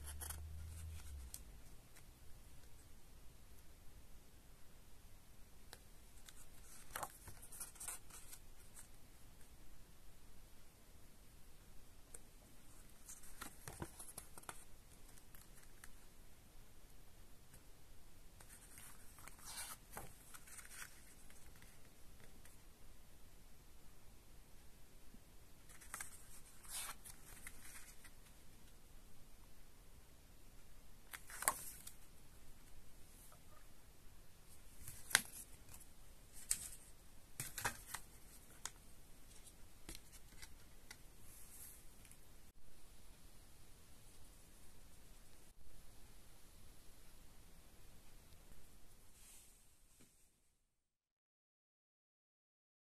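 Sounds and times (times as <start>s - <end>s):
paper pages rustling: 0.0s - 2.1s, 6.2s - 9.0s, 12.7s - 16.0s, 18.4s - 22.6s, 25.6s - 28.4s, 31.1s - 32.1s, 34.7s - 42.2s.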